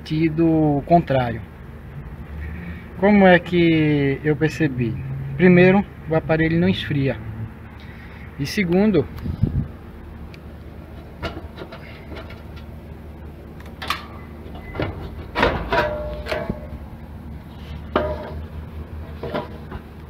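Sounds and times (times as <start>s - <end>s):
steady low hum: 0.0s - 20.0s
sheet metal knocks and clanks: 14.8s - 16.8s, 17.9s - 18.5s.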